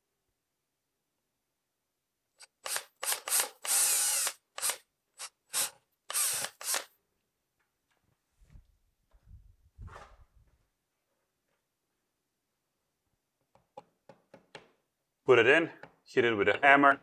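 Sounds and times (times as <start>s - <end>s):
cordless drill boring into drywall: 2.4s - 6.9s.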